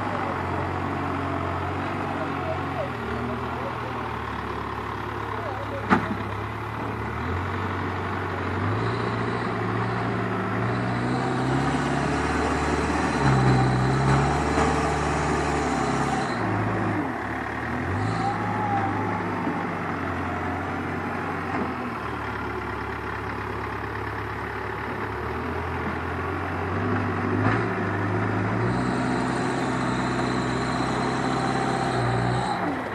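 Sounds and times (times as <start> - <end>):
diesel engine working under load: 0.0 - 32.9.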